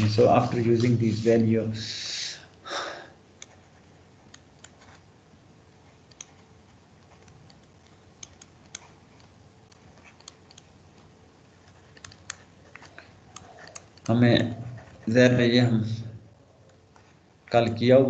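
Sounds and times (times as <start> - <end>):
low steady hum: 0.0 - 18.0
small clicks and taps: 11.7 - 14.2.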